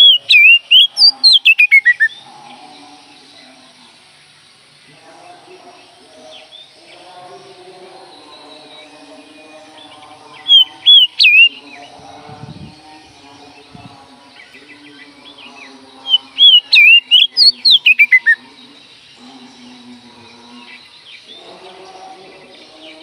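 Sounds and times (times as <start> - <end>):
bird singing whistled notes: 0.0 - 2.2, 9.8 - 12.8, 13.6 - 19.2.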